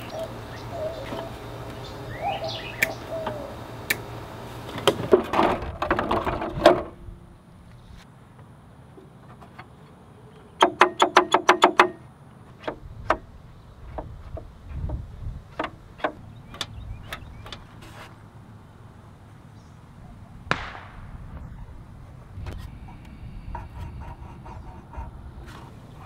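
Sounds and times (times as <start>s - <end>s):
short scrape: 17.8s - 18.2s.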